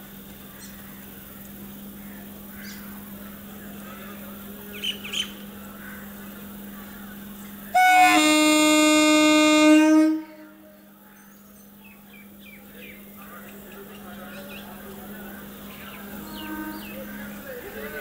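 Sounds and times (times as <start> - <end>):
train horn blast: 7.7 - 10.9, 16.0 - 17.7
bird chirps: 15.4 - 17.6.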